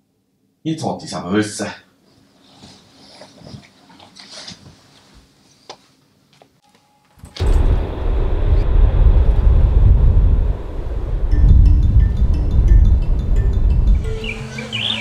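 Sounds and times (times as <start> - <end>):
bedding rustling: 2.1 - 6.0.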